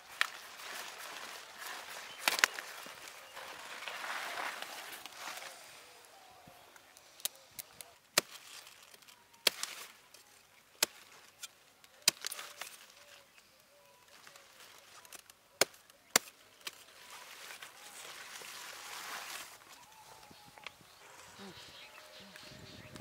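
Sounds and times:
leaves rustling: 0.0s - 23.0s
broccoli stalks snapping: 0.1s - 5.4s, 7.2s - 10.2s, 10.8s - 13.0s, 14.1s - 17.7s.

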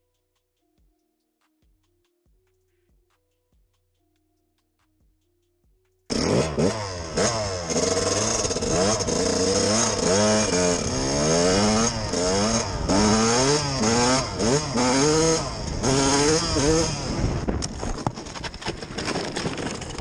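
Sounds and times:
dirt bike engine revving: 6.1s - 20.0s.

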